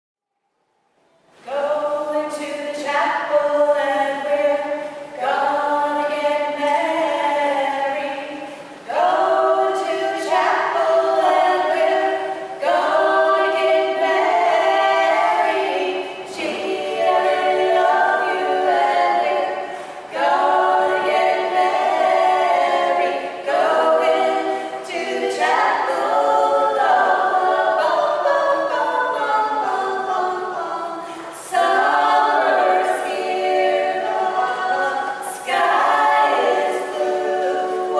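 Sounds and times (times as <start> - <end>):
a cappella group singing in harmony: 1.2 - 37.9.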